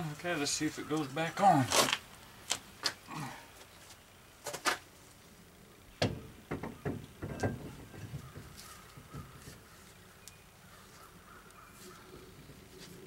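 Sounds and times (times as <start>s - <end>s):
brake drum metal clunks and scrapes: 6.0s - 9.6s.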